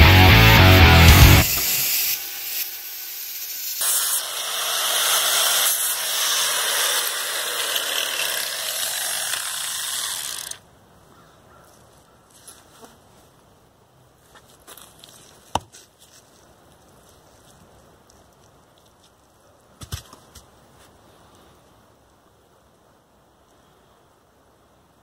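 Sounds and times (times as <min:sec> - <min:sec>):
angle grinder grinding steel: 0:00.0 - 0:10.6.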